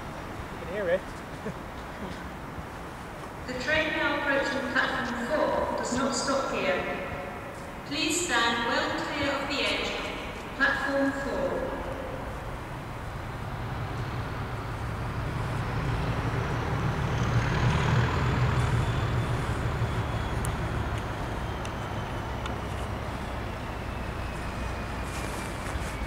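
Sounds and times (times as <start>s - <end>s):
diesel locomotive engine rumble: 0.0s - 26.0s.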